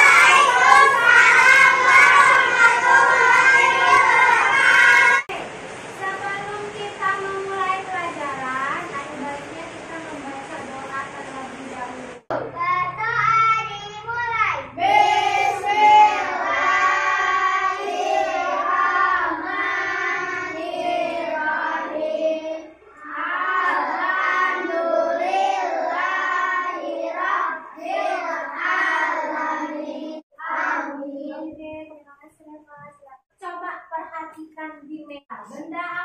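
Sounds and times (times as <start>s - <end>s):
children singing: 0.0s - 5.3s, 14.8s - 31.3s.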